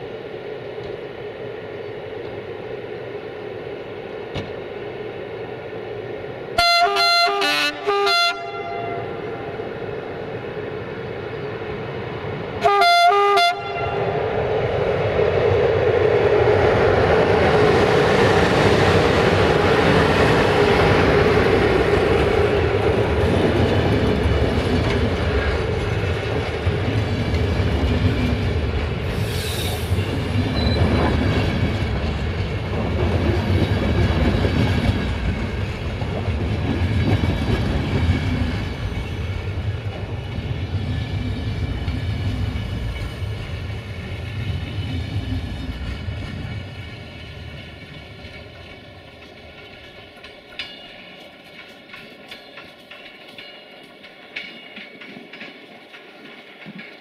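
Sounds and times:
train wheels rumbling on track: 0.0s - 57.0s
locomotive horn blast: 6.6s - 9.2s, 12.6s - 14.1s.

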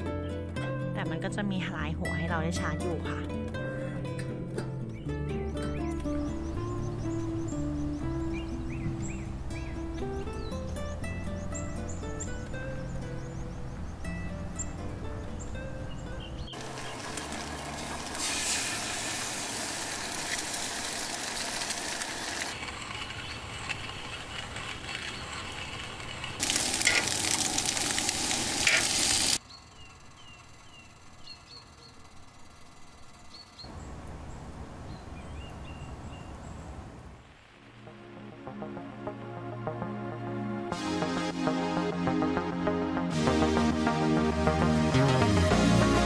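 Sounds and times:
music: 0.0s - 18.4s, 37.8s - 46.0s
hiss and sizzle of cooking: 16.5s - 22.6s, 26.4s - 29.4s
hand-cranked coffee grinder: 16.6s - 29.4s.

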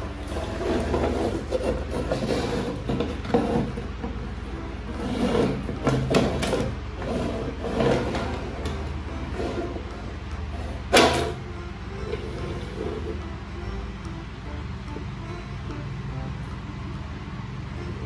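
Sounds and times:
steady low hum: 0.0s - 18.0s
toy car wheels rolling on wood: 0.2s - 4.2s.

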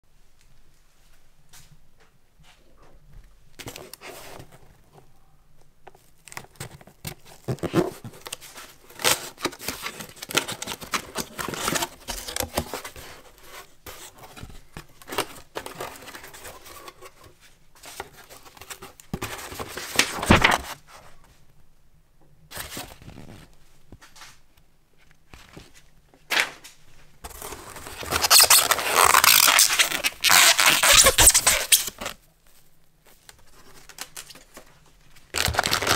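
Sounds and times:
paper rustling: 5.9s - 21.3s, 25.0s - 35.9s
packing foam rustling against cardboard: 6.0s - 21.0s, 27.2s - 35.9s
cardboard flaps scraping and tearing: 19.2s - 20.8s, 27.3s - 32.2s, 35.4s - 35.9s.

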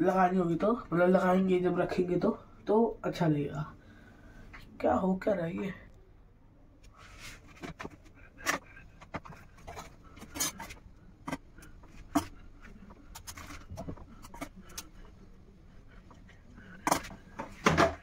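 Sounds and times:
rubbing or scraping: 7.0s - 14.8s
kitchen items knocking: 16.8s - 18.0s.

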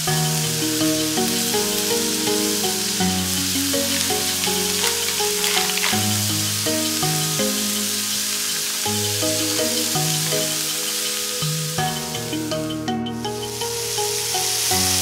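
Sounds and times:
background music melody: 0.0s - 15.0s
food sizzling on grill: 0.0s - 15.0s.

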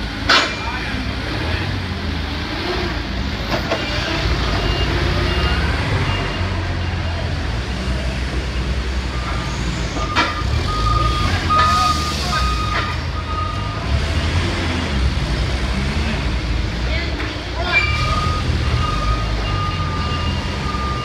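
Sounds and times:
forklift engines running: 0.0s - 21.0s
high-pitched backup alarm beeps: 10.0s - 13.8s, 17.8s - 21.0s
low-pitched backup alarm beeps: 17.9s - 21.0s.

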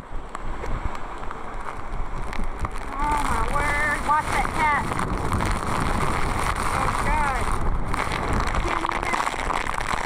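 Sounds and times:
heavy rain hissing on water: 0.0s - 10.0s
wind buffeting microphone: 0.0s - 10.0s.

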